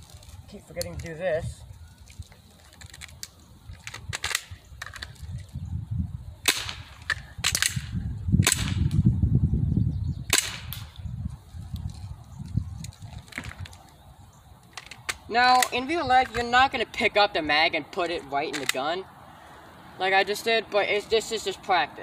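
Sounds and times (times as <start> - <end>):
pistol shots popping: 6.4 - 9.0, 10.3 - 11.0.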